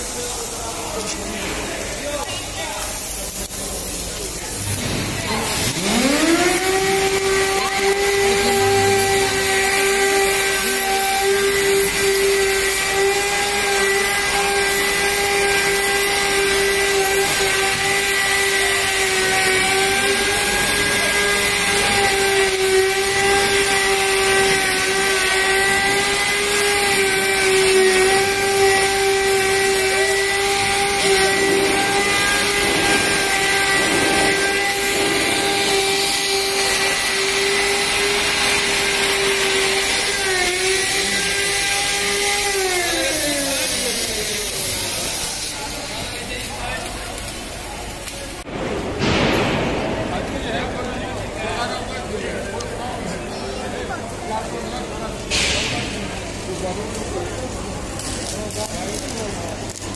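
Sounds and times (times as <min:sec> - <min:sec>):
arc welding hiss: 0:00.0 - 0:59.9
angle grinder whining: 0:04.1 - 0:48.2.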